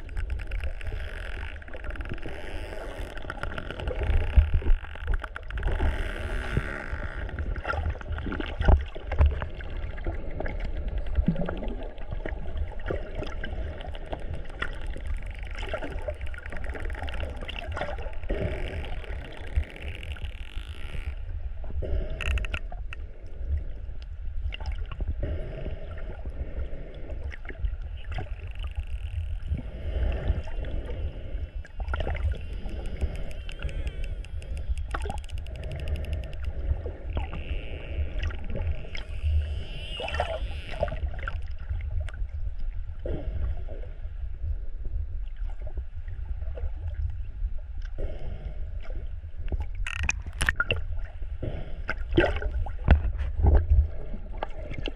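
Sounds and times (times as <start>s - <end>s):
low rumble of water: 0.0s - 54.9s
dolphin clicks: 32.2s - 36.6s.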